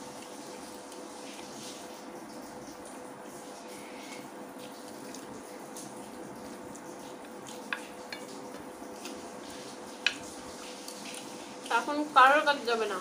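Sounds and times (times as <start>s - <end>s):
background hiss and faint hum: 0.0s - 13.0s
person chewing food: 3.8s - 11.7s.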